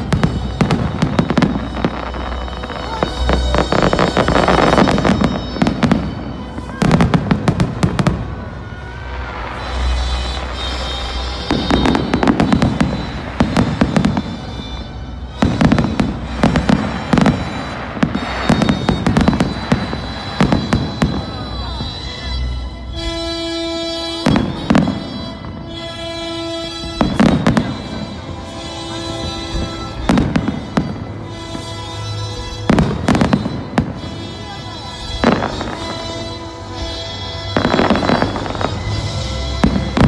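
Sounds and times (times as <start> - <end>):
fireworks booms: 0.0 - 22.2, 26.9 - 28.2, 35.0 - 40.0
fireworks crackling and popping: 0.0 - 40.0
fireworks whistles: 0.0 - 40.0.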